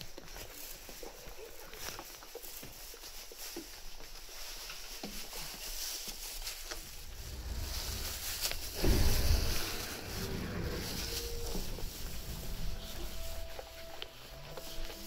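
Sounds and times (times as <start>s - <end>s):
low train rumble: 6.7s - 15.0s
loud low thump: 7.0s - 13.0s.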